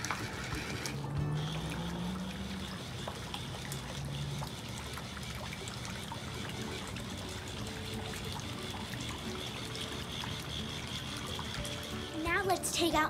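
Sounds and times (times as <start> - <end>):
water trickling and splashing: 0.0 - 13.0.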